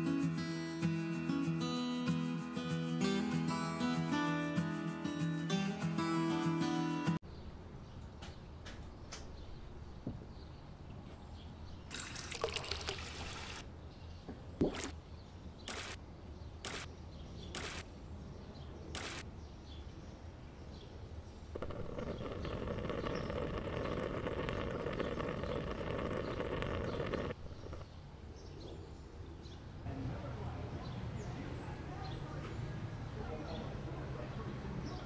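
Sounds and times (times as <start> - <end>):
water boiling and bubbling: 11.9 - 13.6, 21.6 - 27.8.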